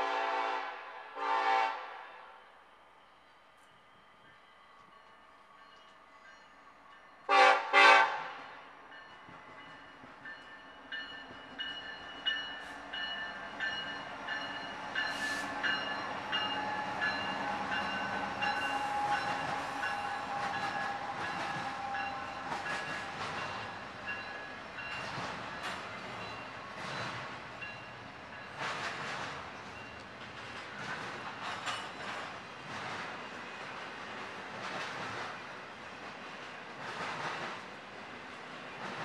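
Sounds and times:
locomotive air horn blasts: 0:00.0 - 0:02.4, 0:07.3 - 0:08.4.

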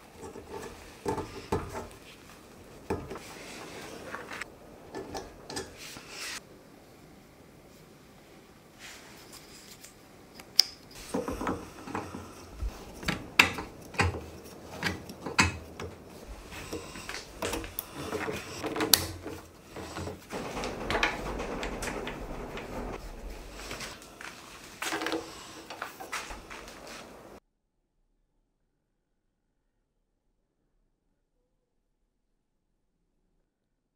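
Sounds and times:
handling rustling: 0:08.9 - 0:27.4.

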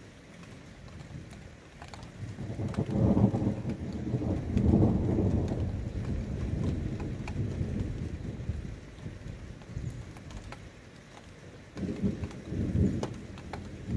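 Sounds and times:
raindrops ticking: 0:00.0 - 0:13.9
thunder rumbling: 0:02.1 - 0:10.0, 0:11.8 - 0:13.9.

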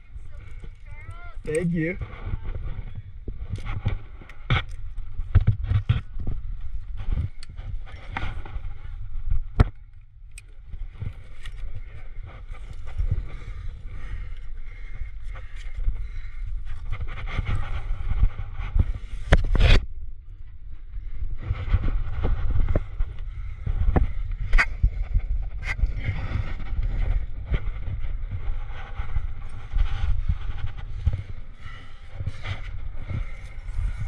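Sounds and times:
wind buffeting microphone: 0:00.0 - 0:34.0
climbing gear clicking and scraping: 0:00.1 - 0:19.8, 0:21.2 - 0:34.0.

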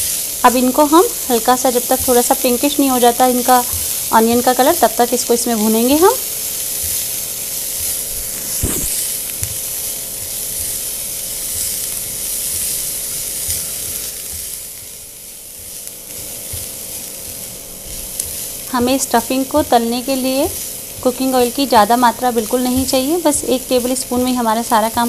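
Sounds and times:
onions sizzling in oil: 0:00.0 - 0:25.0
spatula scraping and tapping pan: 0:06.5 - 0:19.8.

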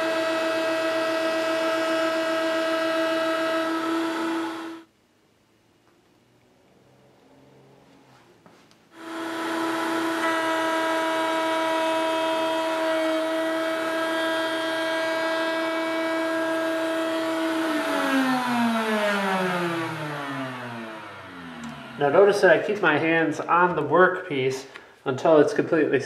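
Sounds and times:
router spinning down: 0:00.0 - 0:04.9, 0:09.0 - 0:22.7
router whining: 0:00.0 - 0:04.9, 0:09.0 - 0:22.9.

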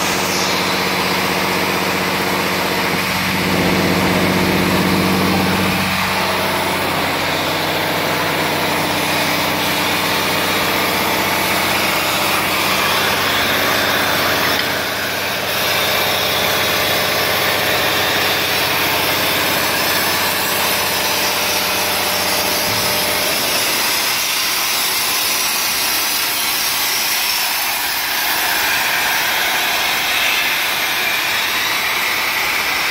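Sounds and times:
low machine hum: 0:00.0 - 0:23.9
torch cutting steel hiss: 0:00.0 - 0:32.9.

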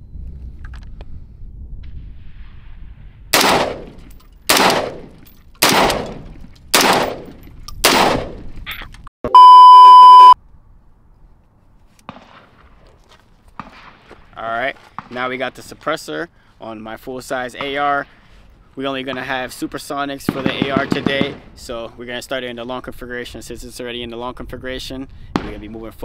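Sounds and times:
rifle shots: 0:03.3 - 0:08.4, 0:20.3 - 0:21.5
electronic beep: 0:09.3 - 0:10.4.

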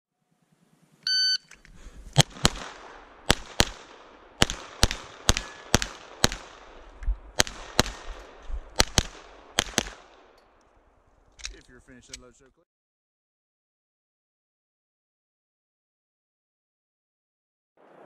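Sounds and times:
shot timer beep: 0:01.1 - 0:01.5
pistol shots: 0:02.2 - 0:10.4.

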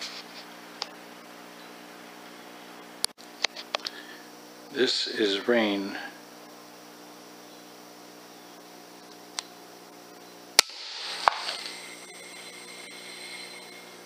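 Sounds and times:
steady electrical hum: 0:00.0 - 0:14.0
air rifle shot crack: 0:10.6 - 0:11.5.

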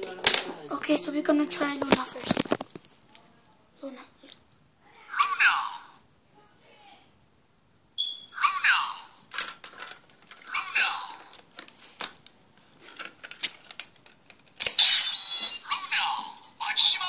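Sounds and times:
toy electronic voice calls: 0:05.1 - 0:06.0, 0:08.3 - 0:09.2, 0:10.4 - 0:11.4, 0:14.7 - 0:17.0
toy electronic sound effect: 0:14.8 - 0:17.0.

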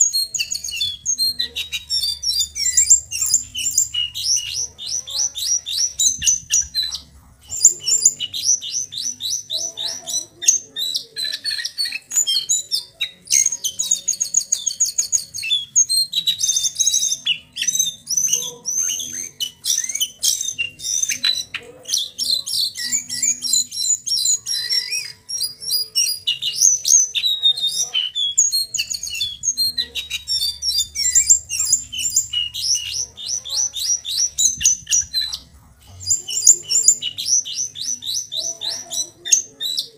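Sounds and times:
bird singing trills and whistles: 0:00.0 - 0:39.9.

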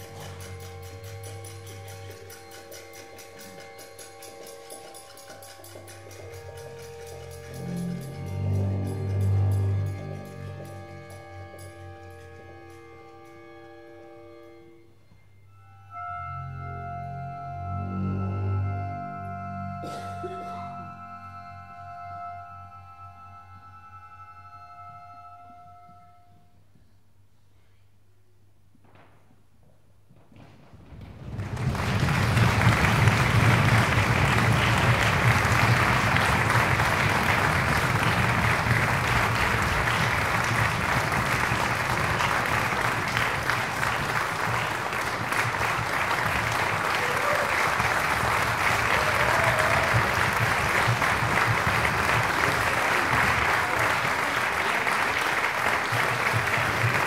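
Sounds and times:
audience applauding: 0:31.2 - 0:57.0.

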